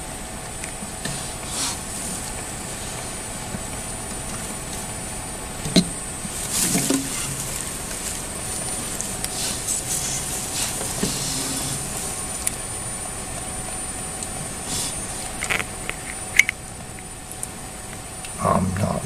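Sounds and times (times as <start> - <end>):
background hiss: 0.0 - 19.0
faint high whine: 0.0 - 19.0
short rustling: 6.1 - 13.4.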